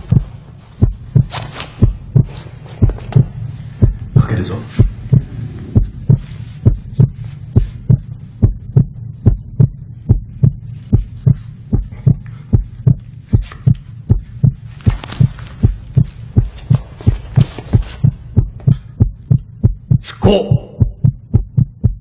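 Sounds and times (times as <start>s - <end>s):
heartbeat thumping: 0.0s - 22.0s.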